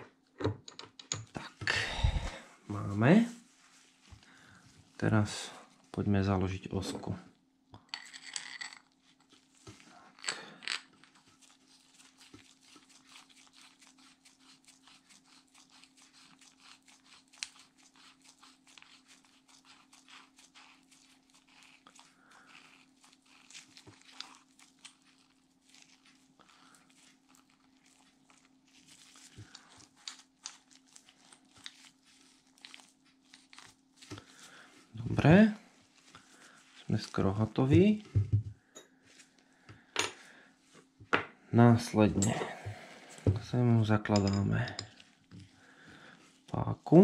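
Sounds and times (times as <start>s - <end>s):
rustle of gloves: 2.0s - 6.5s, 8.9s - 10.2s, 10.8s - 39.7s, 41.8s - 47.0s.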